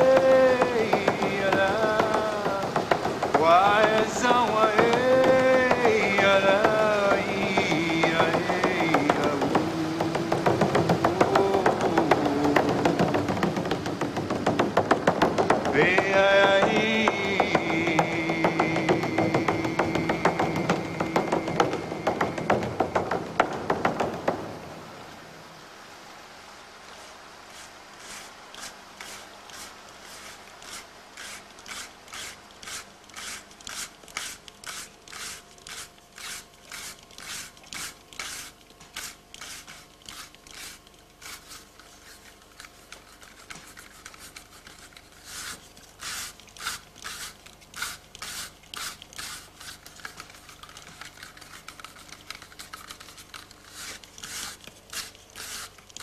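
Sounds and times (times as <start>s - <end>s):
short scraping strokes: 26.9s - 56.0s.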